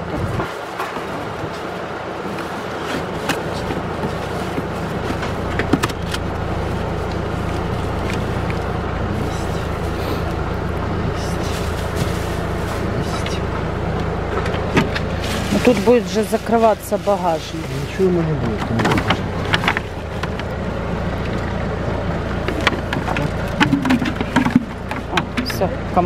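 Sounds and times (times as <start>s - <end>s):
low rumble: 0.0s - 26.0s
steady outdoor noise: 0.0s - 26.0s
knocks and clicks of packing: 18.4s - 20.5s, 22.4s - 25.6s.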